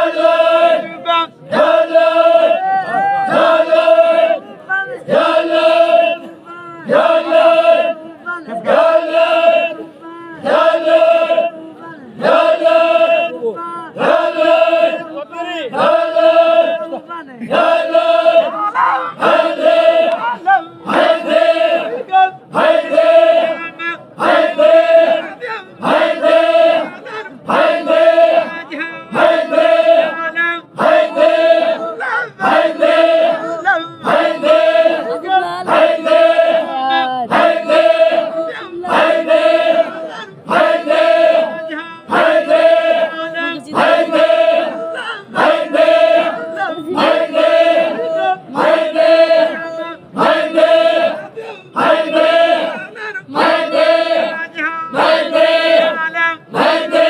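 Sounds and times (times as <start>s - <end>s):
men chanting in unison: 0.0s - 57.0s.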